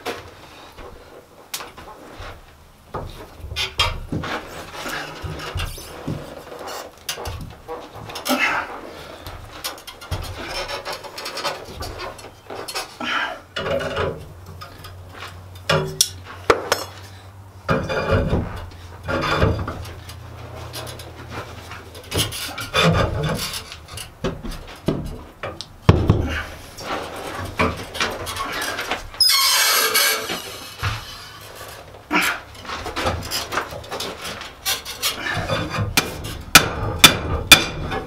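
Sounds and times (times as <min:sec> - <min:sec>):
metal squeaks: 0:03.6 - 0:14.9, 0:17.1 - 0:24.7, 0:26.3 - 0:36.5
metal scraping and grating: 0:03.6 - 0:24.8, 0:26.3 - 0:38.0.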